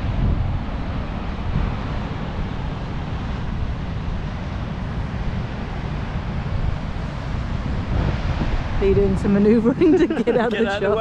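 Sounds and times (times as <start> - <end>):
ocean surf breaking: 0.0 - 11.0
wind rumbling on microphone: 0.0 - 11.0.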